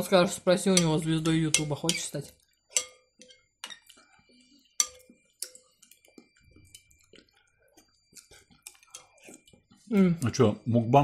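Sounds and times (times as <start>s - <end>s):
spoons clinking against bowls: 0.6s - 7.4s, 8.1s - 9.7s.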